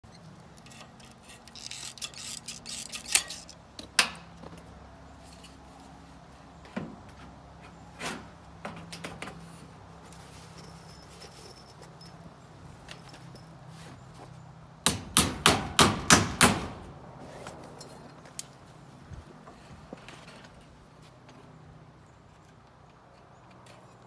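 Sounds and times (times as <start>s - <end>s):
metal trim clacking and scraping: 0.0s - 4.2s.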